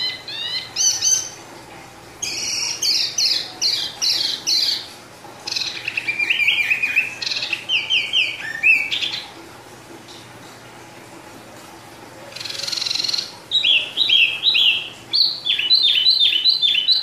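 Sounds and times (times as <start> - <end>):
songbird singing: 0.0 - 1.5, 2.2 - 9.4, 12.3 - 17.0.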